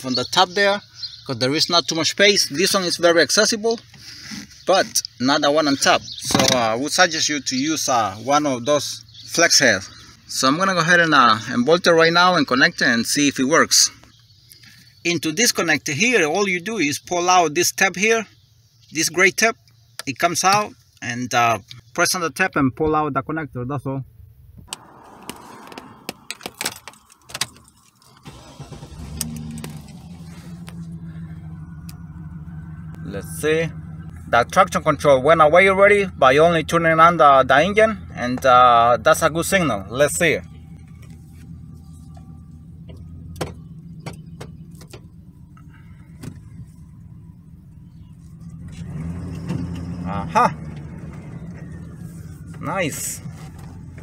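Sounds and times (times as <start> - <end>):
ignition clicks: 24.6 - 33.1, 40.4 - 52.5
truck engine starting and idling: 24.6 - 54.0.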